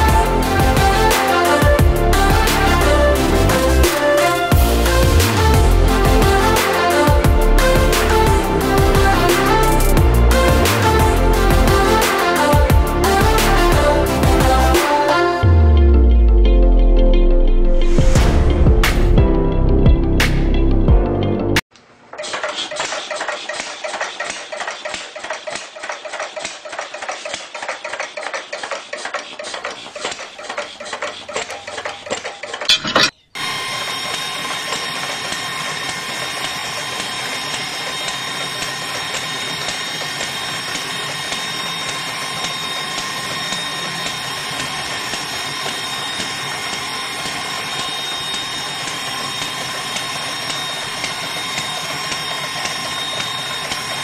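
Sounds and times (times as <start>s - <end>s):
model engine clattering: 22.2s - 33.1s.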